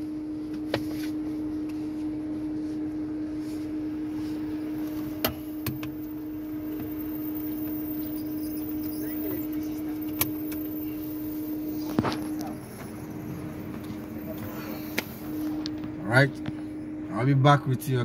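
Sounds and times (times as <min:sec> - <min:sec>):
car engine idling: 0:04.6 - 0:18.0.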